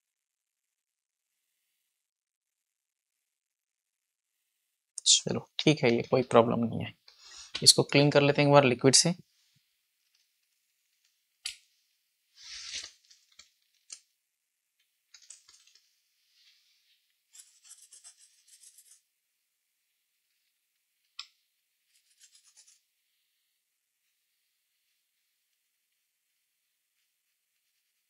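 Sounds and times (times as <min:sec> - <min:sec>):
scratchy scrubbing: 0:17.3 - 0:19.0, 0:21.9 - 0:22.8.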